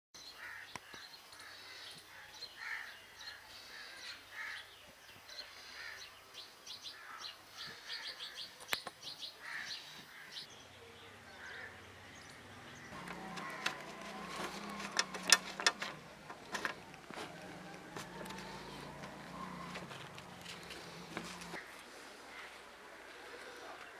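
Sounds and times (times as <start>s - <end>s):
birds chirping: 0.2s - 23.9s
sharp clicks and knocks: 12.9s - 21.6s.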